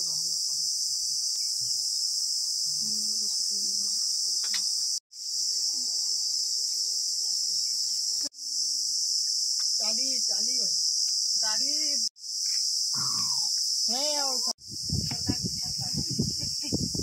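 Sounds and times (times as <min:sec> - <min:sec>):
shrill insect chorus: 0:00.0 - 0:17.0.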